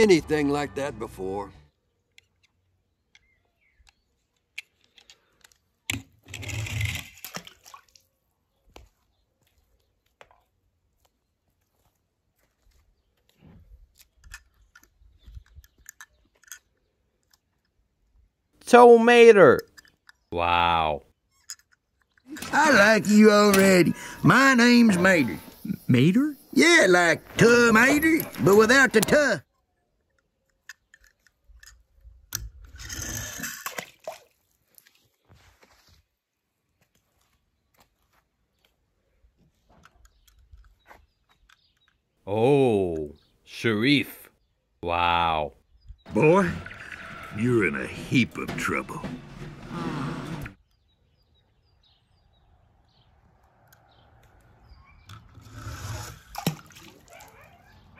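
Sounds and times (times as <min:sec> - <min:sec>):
toy car clicks and scuffs: 0:13.9 - 0:17.8, 0:21.3 - 0:22.4, 0:30.0 - 0:33.6
toy car splashing into pool: 0:32.8 - 0:34.4, 0:56.2 - 0:57.1
water churning: 0:46.1 - 0:50.6.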